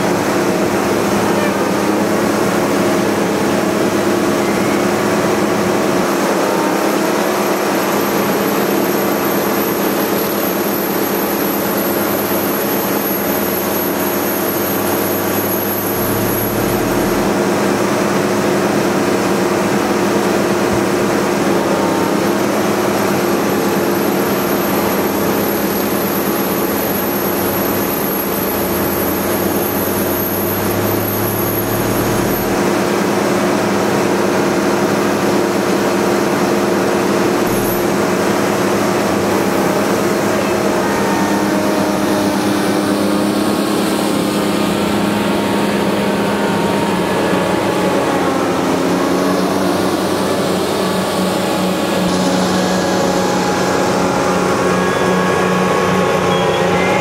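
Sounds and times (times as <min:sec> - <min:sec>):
droning truck engine: 0:00.0 - 0:57.0
deep rumble: 0:15.4 - 0:17.7.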